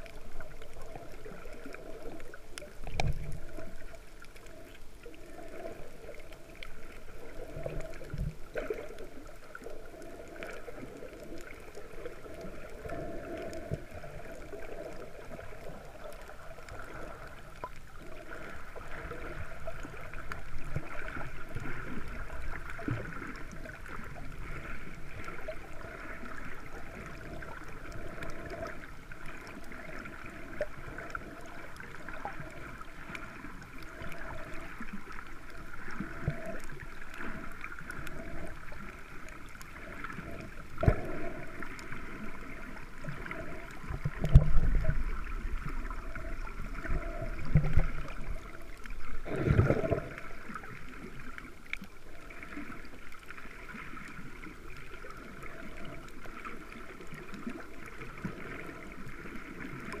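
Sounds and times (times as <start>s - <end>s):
water sloshing: 0.0s - 60.0s
underwater hiss: 18.0s - 51.4s.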